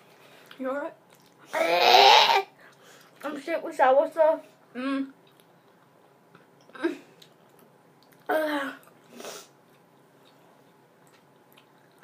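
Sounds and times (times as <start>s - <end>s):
girl straining in throat: 1.5s - 2.5s, 8.3s - 8.9s.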